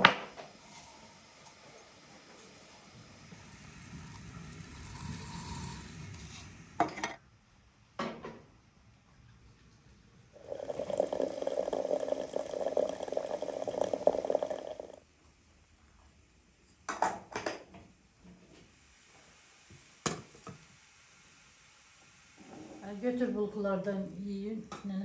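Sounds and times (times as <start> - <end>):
water pouring into teapot: 0.5 - 6.4, 10.4 - 15.0.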